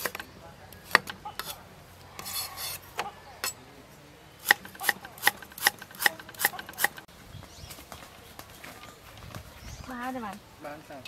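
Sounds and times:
cleaver scraping ginger skin: 0.0 - 1.6, 2.2 - 3.6, 4.4 - 7.1.

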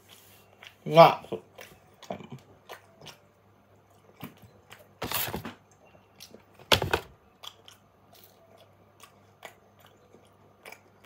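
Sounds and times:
wet chewing clicks and smacks: 0.6 - 4.9, 7.3 - 11.0.

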